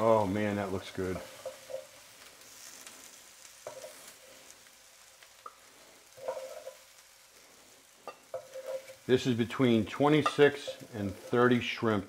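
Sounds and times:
faint sizzle from hot pan: 0.0 - 12.0
metal tongs clicking and scraping: 6.2 - 6.8, 8.1 - 9.0.

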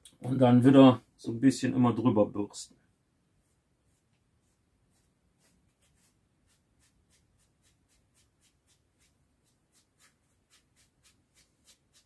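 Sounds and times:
sponge brushing paint strokes: 3.2 - 12.0.

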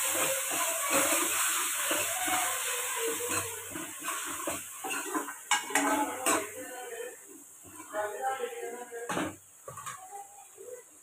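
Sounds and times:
metal spoon scraping a pan: 0.0 - 6.6
light sizzle: 0.0 - 11.0.

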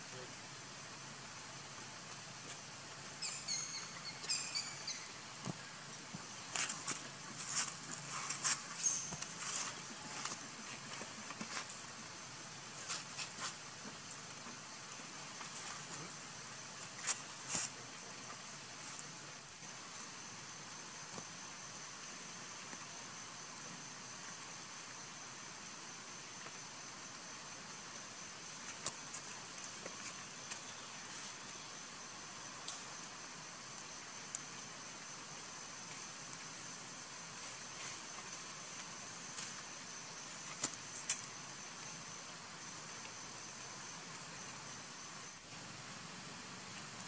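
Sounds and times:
faint high-pitched whine: 0.0 - 47.0
outdoor background hiss: 0.0 - 47.0
high-pitched insect buzz: 2.5 - 5.3, 6.5 - 10.6.

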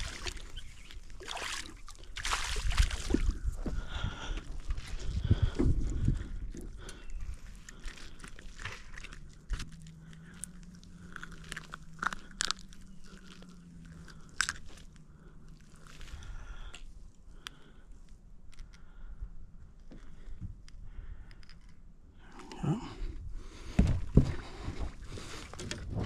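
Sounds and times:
low steady hum: 0.0 - 26.0
fish and tackle handling clicks: 16.7 - 18.9.

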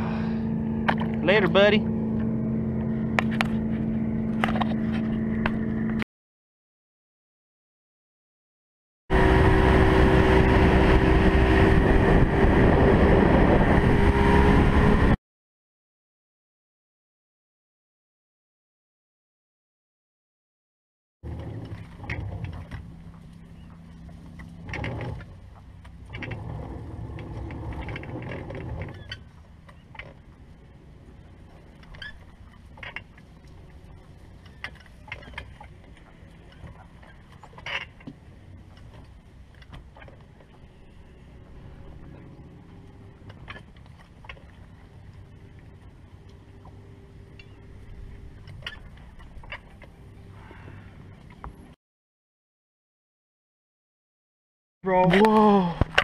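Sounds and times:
electric trolling motor humming: 0.0 - 6.0, 21.2 - 51.7.

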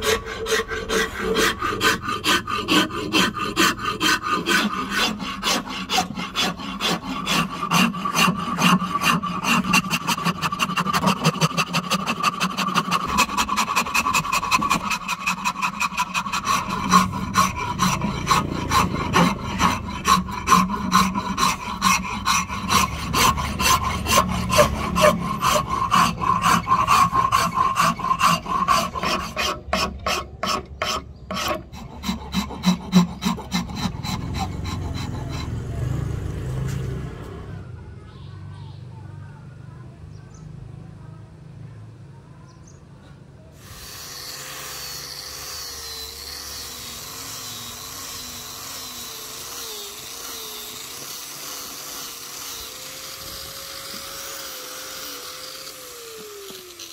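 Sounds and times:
hand file rasping on wood: 0.0 - 36.2.

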